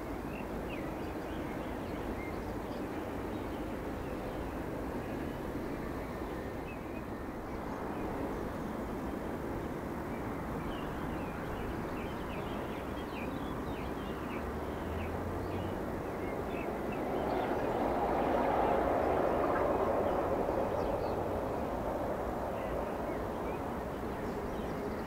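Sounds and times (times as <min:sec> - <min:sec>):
steady outdoor rumble: 0:07.2 - 0:25.0.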